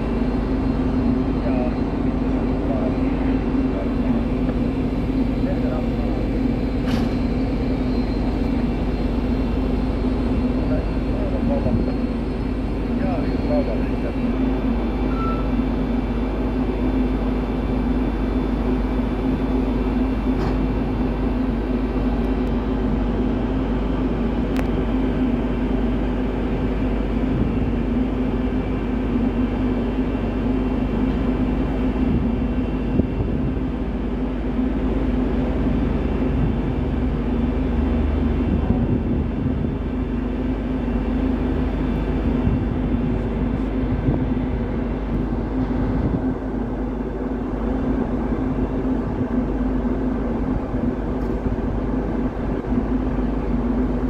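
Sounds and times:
ferry machinery drone: 0.0 - 54.0.

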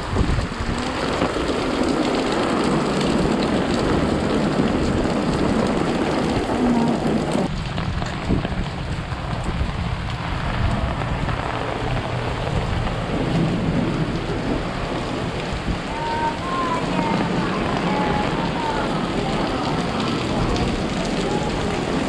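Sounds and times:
heavy rain on a wet street: 0.0 - 22.0
low rumble: 0.0 - 22.0.

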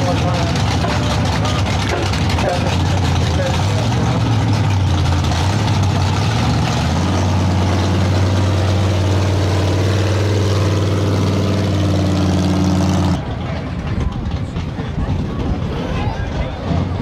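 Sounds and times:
truck engine running at low revs: 0.0 - 17.0.

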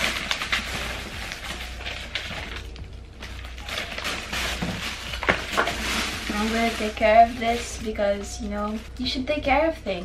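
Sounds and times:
cardboard packaging rustling: 0.0 - 9.2
light background music: 0.0 - 10.0
plastic wrapping crinkling: 0.0 - 10.0.

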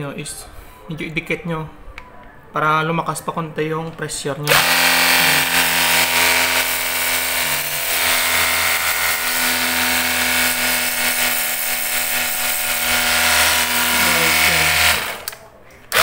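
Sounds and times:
pump motor humming: 4.5 - 15.3.

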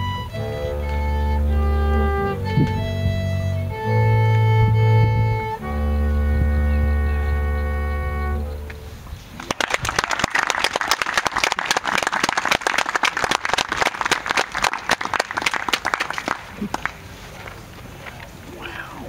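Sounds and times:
bowed violin and double bass note: 0.0 - 9.1
audience applauding: 9.4 - 17.6.

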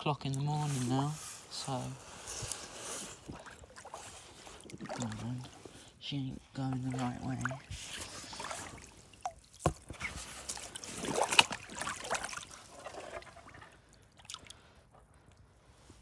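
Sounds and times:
water splashing and trickling: 0.0 - 15.9.

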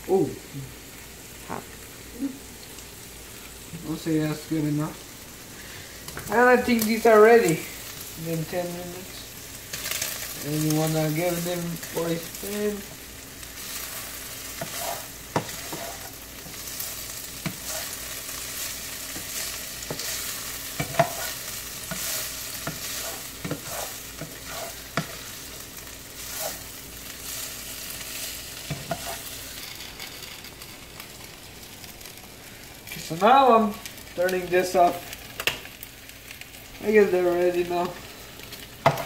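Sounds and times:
meat sizzling in a frying pan: 0.0 - 39.0
spatula scraping and tapping pan: 14.5 - 16.8, 17.4 - 18.0, 19.1 - 25.2, 28.6 - 30.3.

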